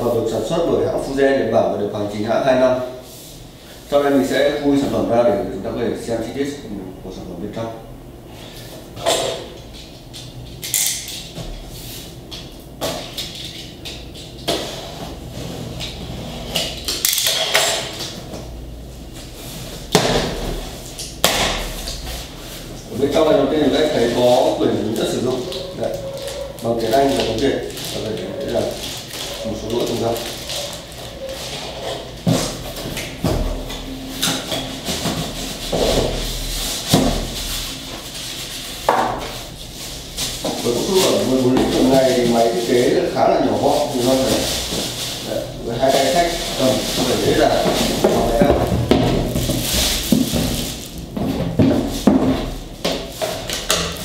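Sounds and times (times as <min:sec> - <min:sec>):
cardboard scrapes and rustles: 0:39.4 - 0:52.1.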